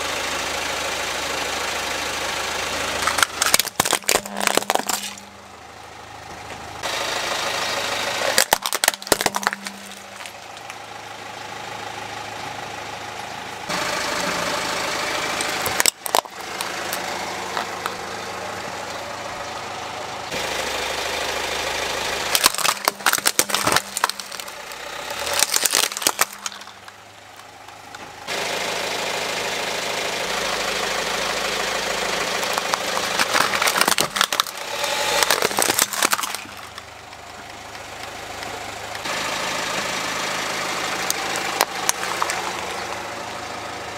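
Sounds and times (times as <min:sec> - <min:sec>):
car engine idling: 0:00.0 - 0:43.9
plastic toys cracking under tyre: 0:02.9 - 0:05.3, 0:08.2 - 0:10.8, 0:15.4 - 0:18.0, 0:22.3 - 0:28.0, 0:32.3 - 0:37.2, 0:41.0 - 0:43.0.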